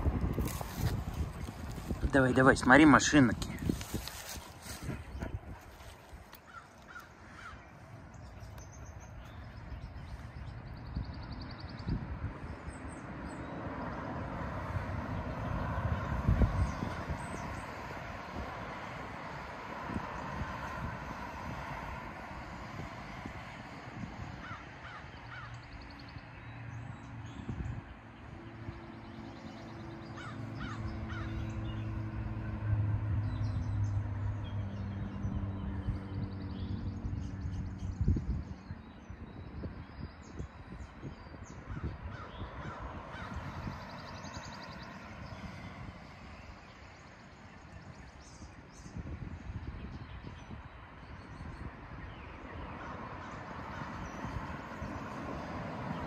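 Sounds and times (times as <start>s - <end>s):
car passing: 0.0s - 39.1s, 40.5s - 49.5s, 50.6s - 56.0s
gusty wind on microphone: 0.0s - 56.0s
traffic noise: 0.0s - 56.0s
crow calling: 6.4s - 7.7s, 24.4s - 25.6s, 30.2s - 31.6s.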